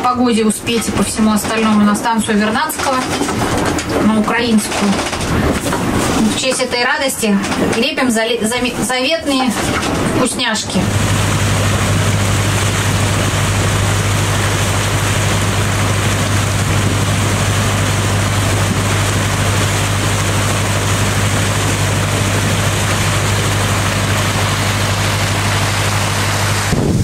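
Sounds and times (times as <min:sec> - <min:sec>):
boat engine drone: 0:00.0 - 0:27.0
rush of wind and water: 0:08.6 - 0:27.0.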